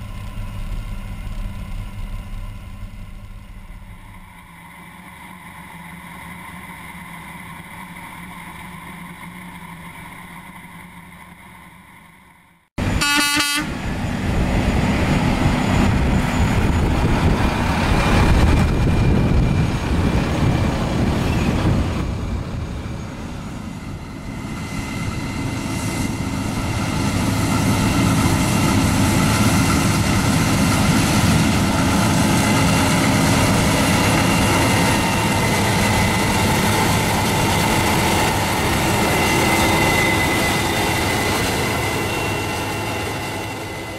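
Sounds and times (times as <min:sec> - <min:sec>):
combine harvester running: 0:00.0 - 0:11.0, 0:12.8 - 0:43.9
short horn toot: 0:12.9 - 0:13.7.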